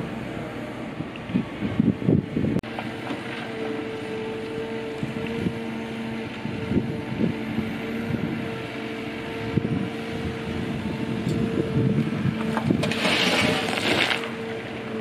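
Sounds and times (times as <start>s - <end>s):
excavator engine and hydraulics: 0.0s - 15.0s
dirt pouring from bucket: 12.8s - 14.3s.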